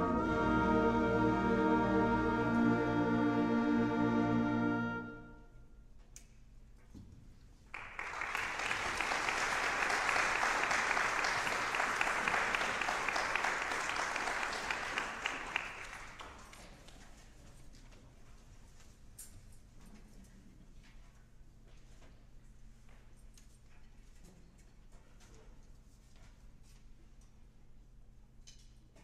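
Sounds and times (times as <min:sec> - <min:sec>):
audience applauding: 0:07.7 - 0:16.6.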